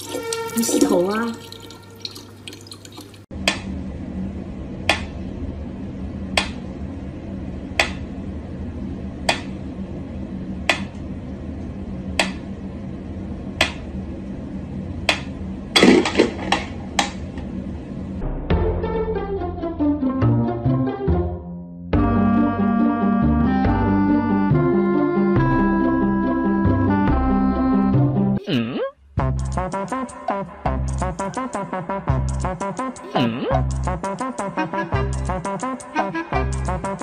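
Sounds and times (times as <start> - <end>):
low hum: 3.3 - 19.7.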